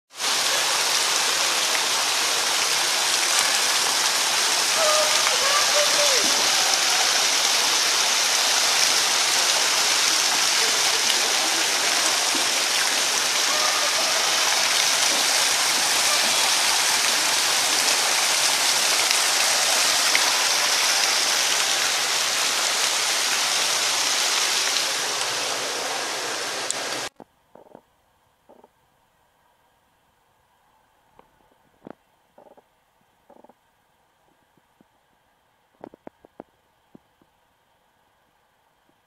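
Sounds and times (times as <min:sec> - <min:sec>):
water splashing into pool: 0:00.4 - 0:25.8.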